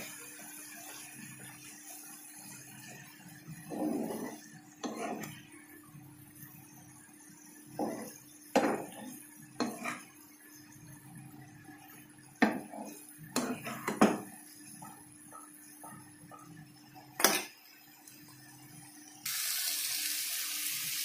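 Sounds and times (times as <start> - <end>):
spatula scraping frying pan: 3.5 - 5.5, 7.8 - 10.2, 12.4 - 15.0.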